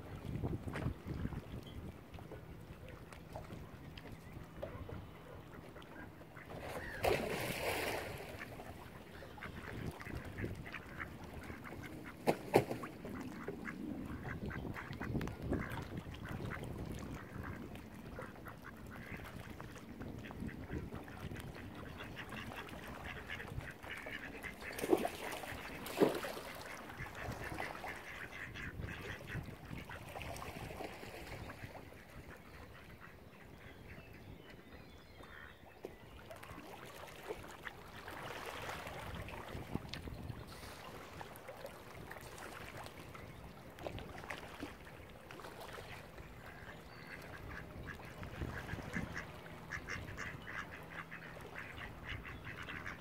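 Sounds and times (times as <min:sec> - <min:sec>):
ducks quacking: 0:04.6 - 0:34.3, 0:46.4 - 0:53.0.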